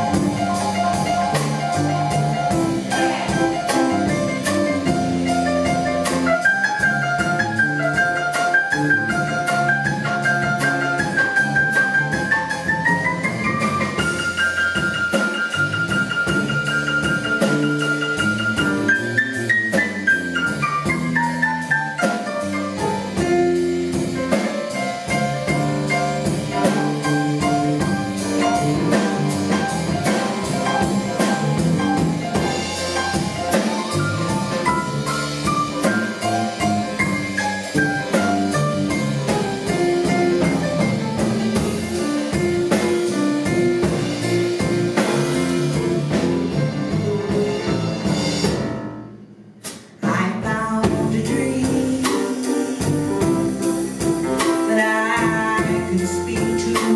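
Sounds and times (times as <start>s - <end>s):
electric bass: 0.0s - 48.8s, 50.5s - 56.9s
drum kit: 0.0s - 56.9s
grand piano: 0.0s - 56.9s.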